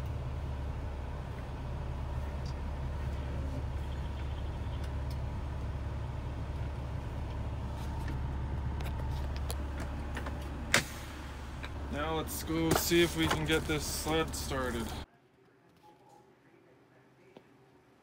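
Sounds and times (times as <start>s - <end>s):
diesel truck engine running: 0.0s - 15.1s.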